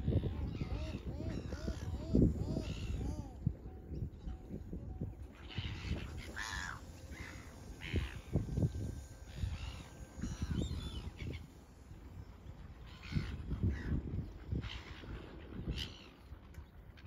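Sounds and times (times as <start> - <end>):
gulls squawking: 0.1 - 3.6, 5.3 - 11.8.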